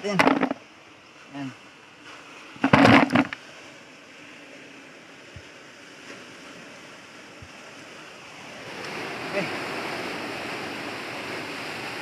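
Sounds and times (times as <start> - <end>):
surf breaking on rocks: 2.0 - 3.7.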